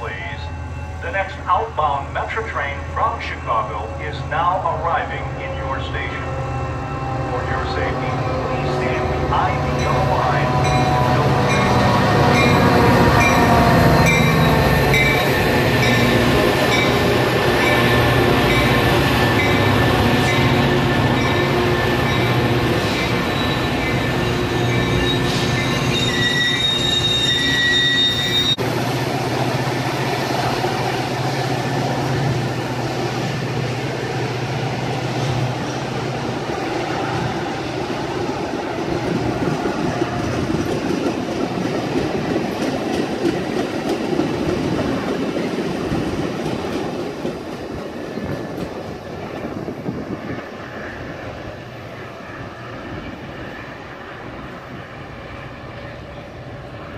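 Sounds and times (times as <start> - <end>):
locomotive bell ringing: 8.5 - 28.6
train wheels rolling: 8.5 - 51.1
brake and wheel squeal: 24.6 - 28.6.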